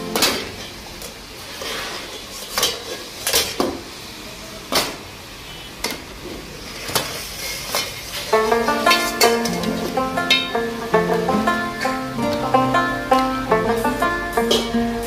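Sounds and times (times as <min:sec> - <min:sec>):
metal ladle clanking on wok: 0:08.9 - 0:12.0, 0:14.4 - 0:14.8.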